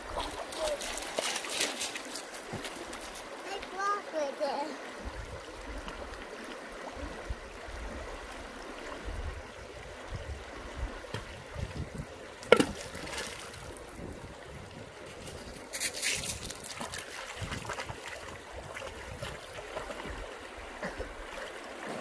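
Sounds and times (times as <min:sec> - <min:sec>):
creek water over stones: 0:00.0 - 0:22.0
small water splashes: 0:00.0 - 0:22.0
rock plunking into water: 0:12.4 - 0:13.6.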